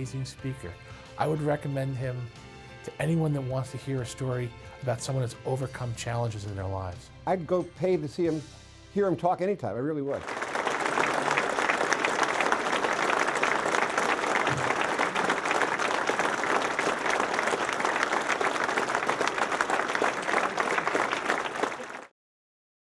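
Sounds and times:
crowd applauding: 0:10.2 - 0:22.1.

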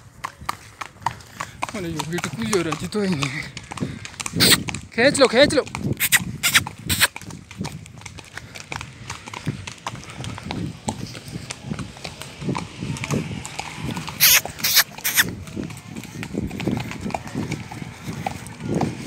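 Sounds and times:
horse hoofbeats on dirt trail: 0:00.0 - 0:19.0
loud sharp noises: 0:14.0 - 0:15.3.

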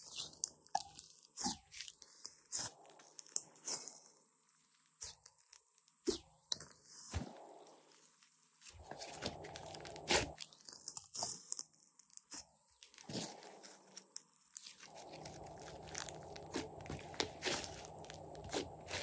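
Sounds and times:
slime popping and crackling: 0:08.7 - 0:19.0.

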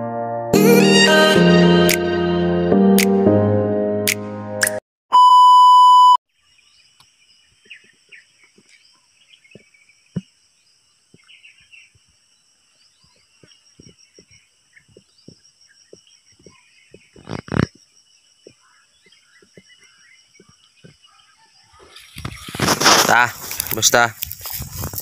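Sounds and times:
high test-tone beep: 0:05.1 - 0:06.2.

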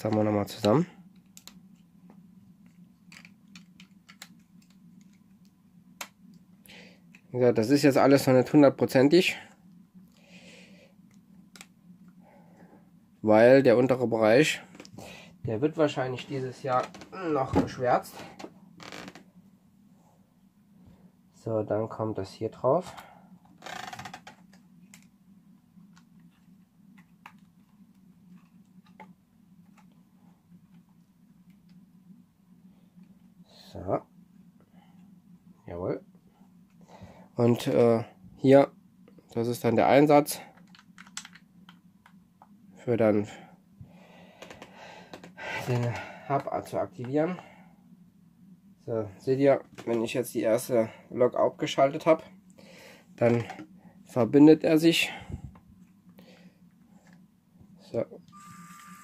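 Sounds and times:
low steady hum: 0:00.0 - 0:59.0
plastic bricks clicking: 0:40.6 - 0:41.4.

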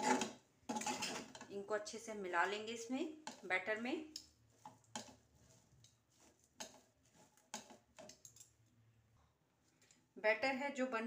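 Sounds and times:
spatula scraping a pan: 0:00.0 - 0:01.5, 0:04.2 - 0:08.4.

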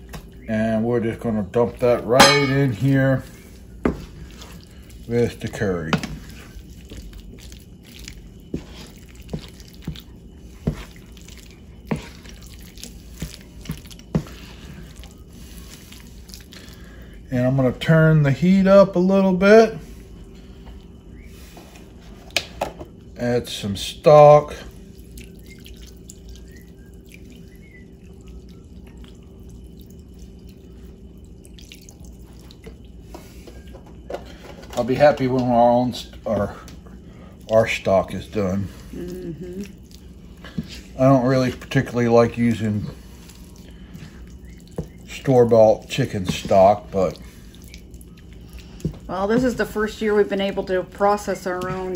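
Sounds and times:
squelching stirring of paste: 0:00.0 - 0:51.9
broth trickling into a pan: 0:01.5 - 0:17.5, 0:23.5 - 0:33.6, 0:34.9 - 0:51.9
spoon knocking against pan: 0:02.2 - 0:02.8.

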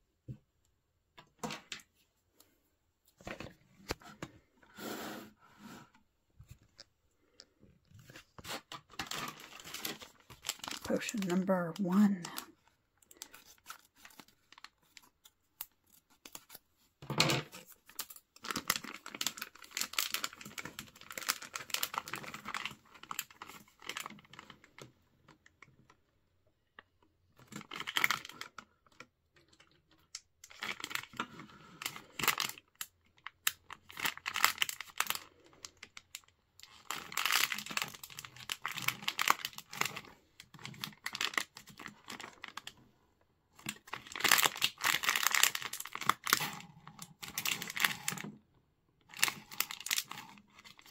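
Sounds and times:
plastic packet crinkling: 0:08.0 - 0:16.6, 0:17.5 - 0:24.9, 0:27.4 - 0:28.6, 0:29.4 - 0:42.8, 0:43.5 - 0:48.3, 0:49.1 - 0:50.9.

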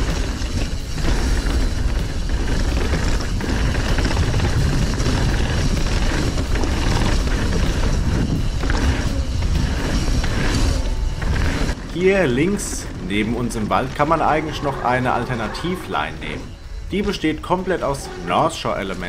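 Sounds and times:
wind rush on microphone: 0:00.0 - 0:14.5
bike rattling over bumps: 0:00.0 - 0:19.0
tyres crunching on gravel: 0:00.0 - 0:19.0.

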